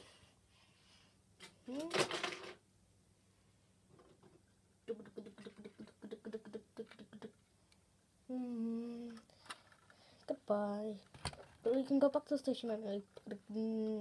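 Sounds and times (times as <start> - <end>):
child humming: 8.3 - 9.2
child making vocal sound effects: 8.3 - 9.2, 13.3 - 14.0.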